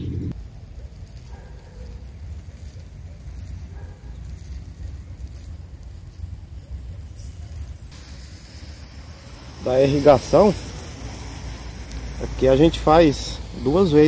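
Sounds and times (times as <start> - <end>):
wind buffeting microphone: 0.0 - 0.4
faint hiss: 0.3 - 14.0.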